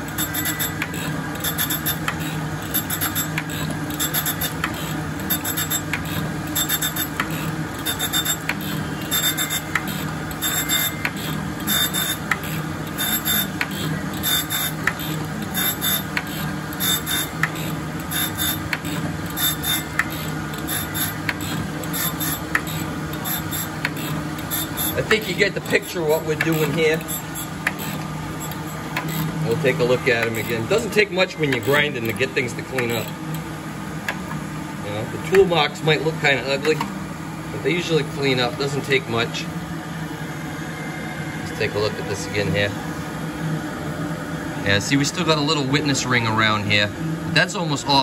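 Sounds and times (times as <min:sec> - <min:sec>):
grinder spindle hum: 0:00.0 - 0:36.6.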